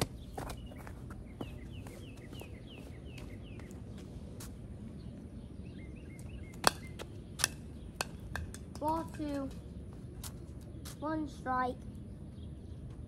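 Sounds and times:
bird chirping: 0.0s - 4.2s, 4.9s - 11.0s.

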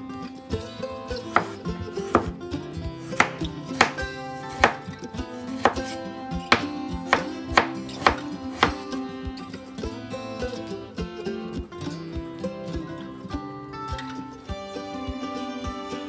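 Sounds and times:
knife knocking on cutting board: 1.4s - 2.3s, 3.2s - 4.0s, 4.6s - 4.8s.

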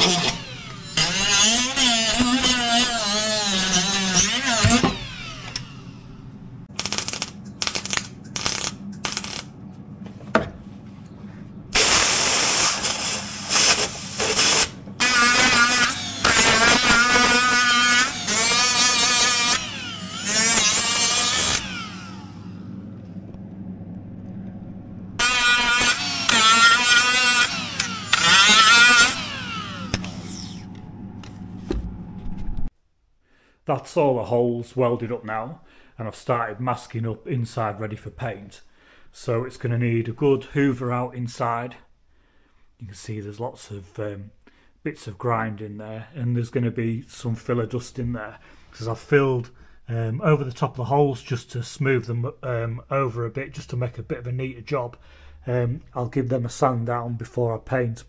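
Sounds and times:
mig welding: 0.0s - 9.5s, 11.7s - 22.6s, 25.2s - 30.8s
power tool whine: 0.0s - 9.5s, 11.8s - 23.7s, 25.2s - 31.5s.

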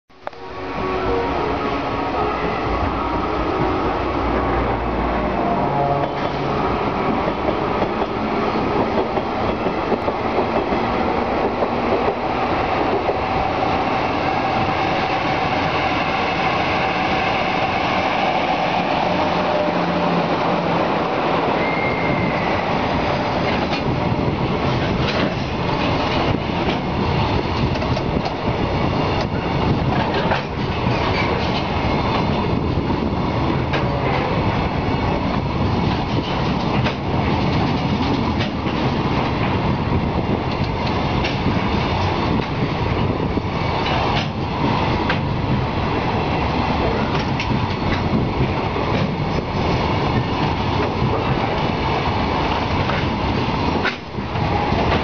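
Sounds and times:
train wheels rumbling on rail: 0.1s - 55.0s
wheel squeal: 21.6s - 22.6s
wagons clacking over rail joints: 23.3s - 28.5s, 29.2s - 32.6s, 35.6s - 39.6s, 46.8s - 51.7s.

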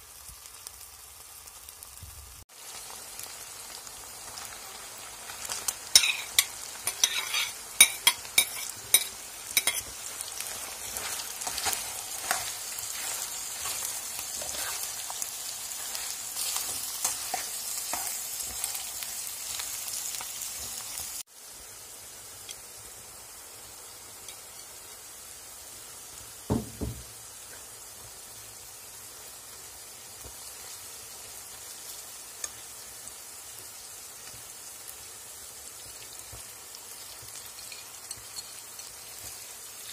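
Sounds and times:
food sizzling in a pan: 0.0s - 39.9s
dull thump: 26.5s - 27.1s.

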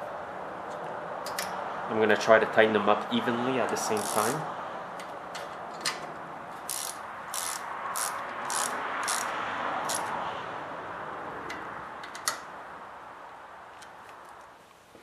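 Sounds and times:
ratchet wrench clicking: 3.9s - 4.4s, 6.6s - 10.1s.

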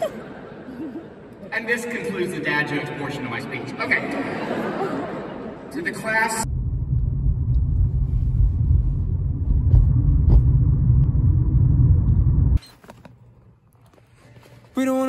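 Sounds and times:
loud low rumbling: 6.4s - 12.6s.

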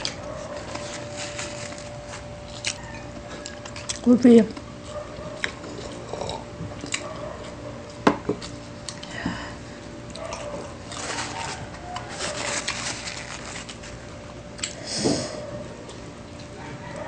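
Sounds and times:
wet chewing and smacking: 0.0s - 9.2s, 13.7s - 14.8s.

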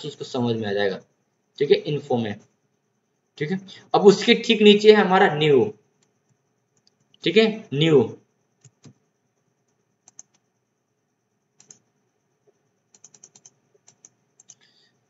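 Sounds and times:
computer mouse clicks: 6.0s - 7.2s, 8.6s - 10.5s, 11.6s - 14.7s.

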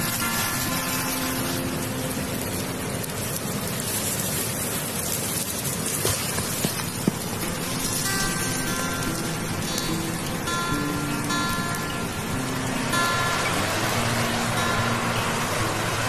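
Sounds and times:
campfire crackling and hissing: 0.0s - 16.0s
sharp pops of fire: 3.0s - 8.0s.

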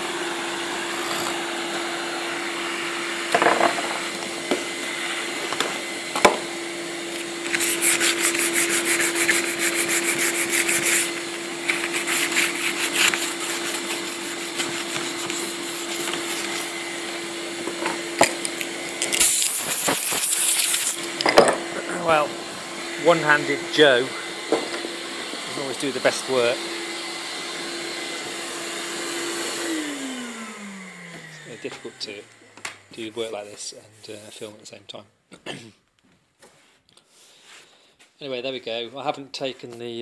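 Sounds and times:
compressed air hissing bursts: 19.2s - 21.0s.

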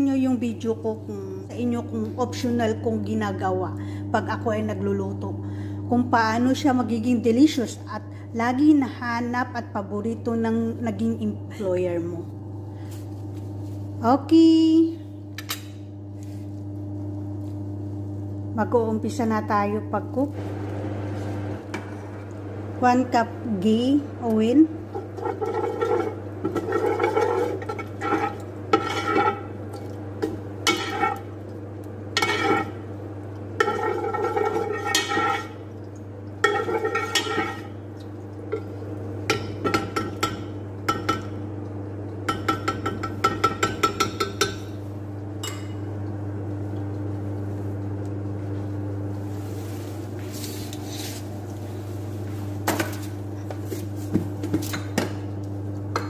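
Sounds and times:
steady low hum: 0.0s - 56.0s
metal ladle scraping pot: 24.9s - 29.5s, 30.2s - 31.3s, 32.2s - 32.8s, 33.6s - 35.6s, 36.4s - 37.8s.

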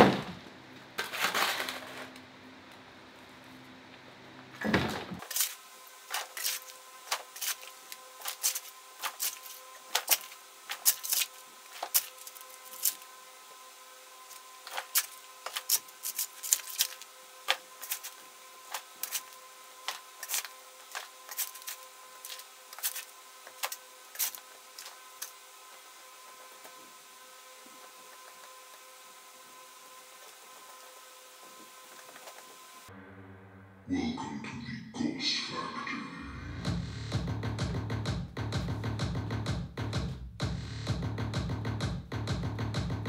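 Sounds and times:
shovel scraping stones and gravel: 5.2s - 13.0s, 14.3s - 25.4s.

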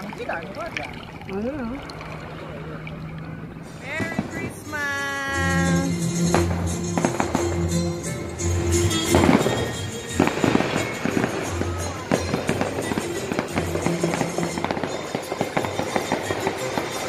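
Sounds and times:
music with low bass line: 5.3s - 17.0s.

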